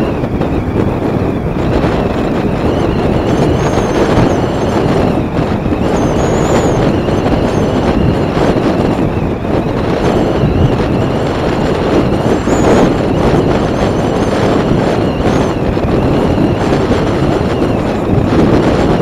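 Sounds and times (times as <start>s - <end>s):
motorcycle engine and tyre noise: 0.0s - 19.0s
wind buffeting microphone: 0.0s - 19.0s
faint high squeal: 2.3s - 8.5s.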